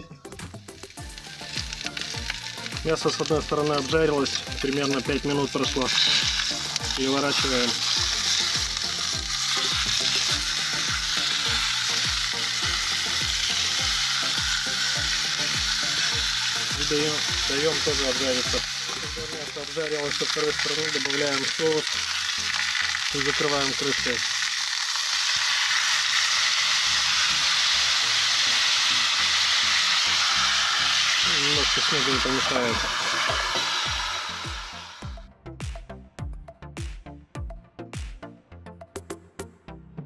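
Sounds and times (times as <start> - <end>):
pork sizzling in a skillet: 0.0 - 35.2
low regular thudding beat: 34.6 - 39.4.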